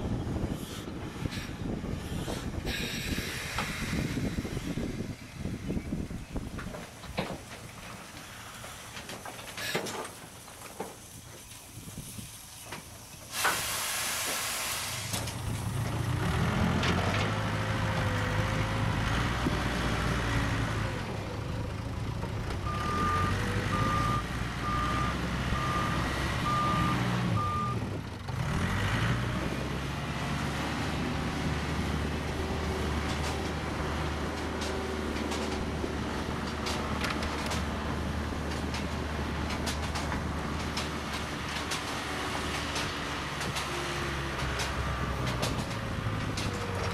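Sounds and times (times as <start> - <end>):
loud hiss: 9.6 - 15.3
diesel engine running: 15.1 - 46.9
reversing alarm beeps: 22.7 - 27.8.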